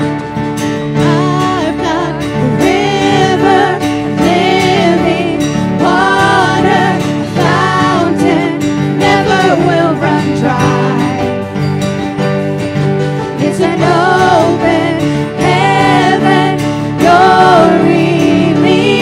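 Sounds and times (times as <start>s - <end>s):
acoustic guitar: 0.0s - 19.0s
sustained keyboard chords: 0.0s - 19.0s
voices singing together: 1.1s - 11.5s, 13.4s - 19.0s.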